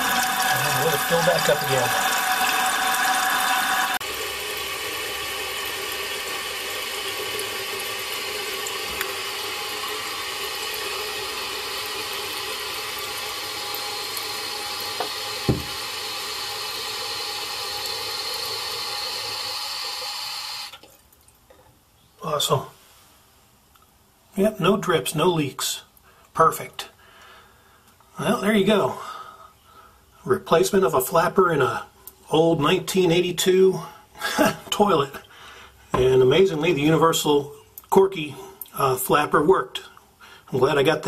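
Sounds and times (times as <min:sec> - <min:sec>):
toilet tank refilling hiss: 0:00.0 - 0:20.8
short knock: 0:15.5 - 0:15.8.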